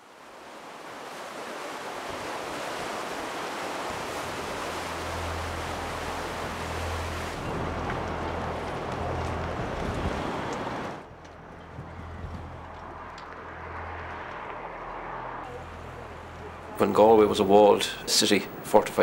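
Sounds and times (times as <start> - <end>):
river rapid rushing: 0.0 - 11.1
low steady hum: 11.0 - 19.0.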